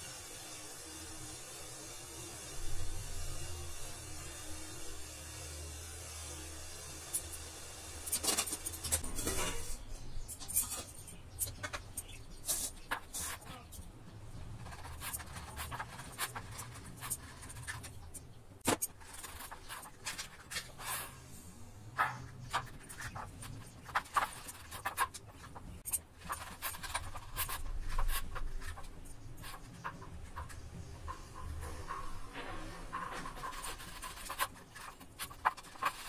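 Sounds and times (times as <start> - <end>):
knife scraping metal plate: 8.0 - 13.7, 22.0 - 36.0.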